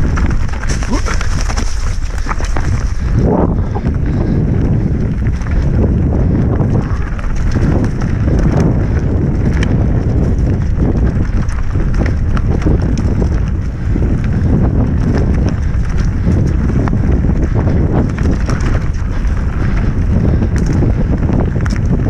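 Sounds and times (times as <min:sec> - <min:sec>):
tyres rolling over leaves: 0:00.0 - 0:03.3
bike knocks and rattles: 0:00.0 - 0:22.0
wind rush over microphone: 0:00.0 - 0:22.0.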